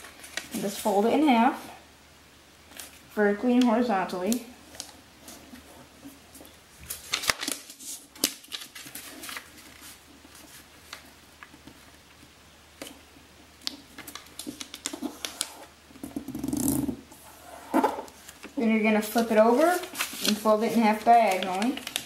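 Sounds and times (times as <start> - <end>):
paper crinkling and tapping: 0.0 - 0.9, 3.6 - 13.0, 13.6 - 16.2, 18.1 - 22.0
paper rustling: 0.0 - 1.0, 4.7 - 12.2, 13.6 - 15.7, 17.8 - 22.0.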